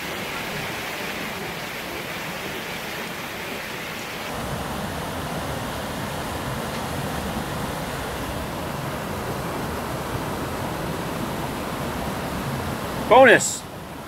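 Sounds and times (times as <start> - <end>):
mountain stream rushing: 0.0 - 14.0.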